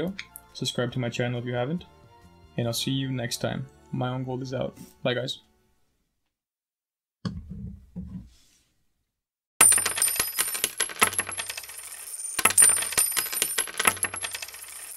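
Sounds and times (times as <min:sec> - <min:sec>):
metallic clinking and jingling: 0:09.6 - 0:14.9
soft knocks of coin capsule: 0:12.4 - 0:14.9.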